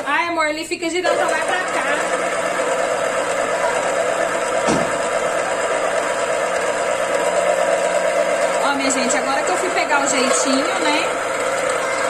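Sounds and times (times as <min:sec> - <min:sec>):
citrus juicer motor running: 0:00.0 - 0:00.2, 0:00.8 - 0:12.0
brief knock: 0:04.6 - 0:05.0.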